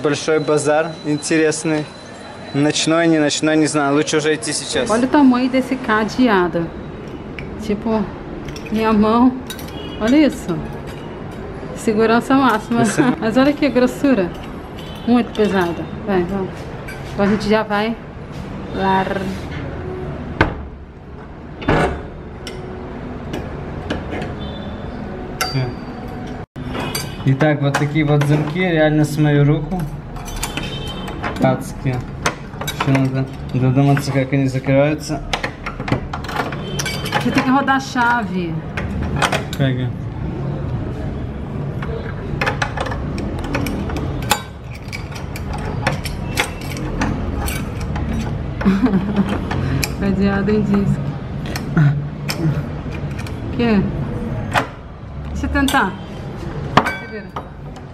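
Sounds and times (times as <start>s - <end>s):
heavy padlock clicking and clanking: 29.8s - 34.3s, 35.0s - 39.7s, 41.6s - 50.1s, 51.3s - 53.5s.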